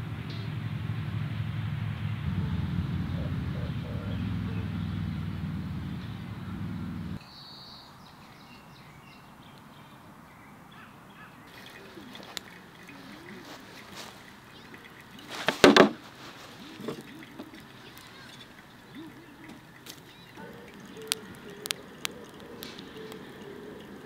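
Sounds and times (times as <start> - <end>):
loud low hum: 0.0 - 7.2
outdoor ambience: 0.0 - 24.0
bird calls: 2.3 - 24.0.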